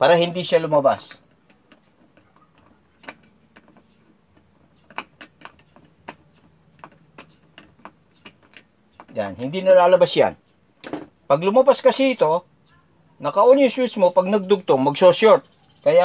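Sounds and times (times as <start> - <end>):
pliers and wire clicking on plastic: 1.1 - 9.6.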